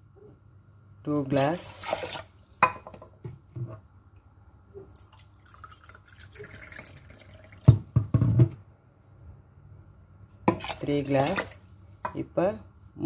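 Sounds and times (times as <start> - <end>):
water splashes: 1.7 - 2.6, 10.5 - 11.7
water trickling and dripping: 4.8 - 7.7.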